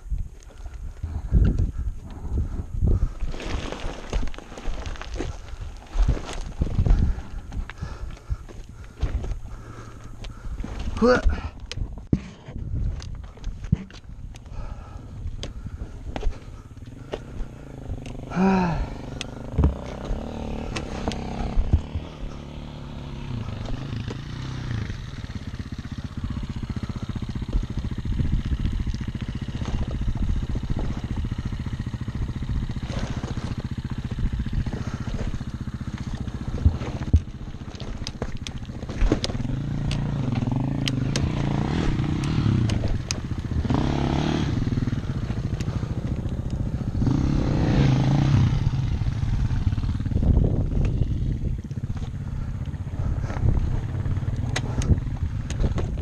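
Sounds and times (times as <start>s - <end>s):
dirt bike engine running unevenly: 0.0s - 56.0s
engine revving in surges: 16.5s - 50.3s.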